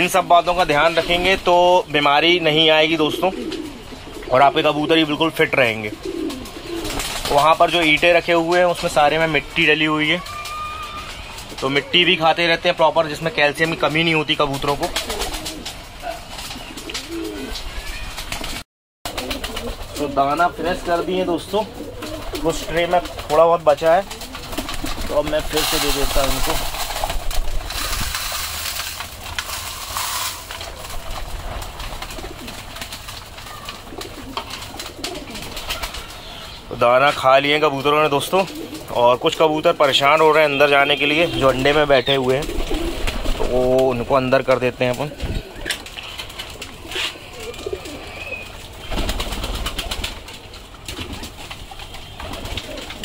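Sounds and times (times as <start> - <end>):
pigeons cooing: 0.0 - 53.0
wings flapping: 0.0 - 53.0
pigeons pecking clicks: 3.2 - 4.3, 6.0 - 11.9, 13.2 - 53.0
grain poured onto tray: 27.7 - 30.8.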